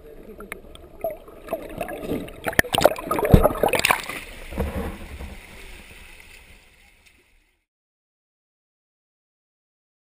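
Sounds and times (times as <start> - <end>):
water splashing and sloshing: 0.0 - 7.7.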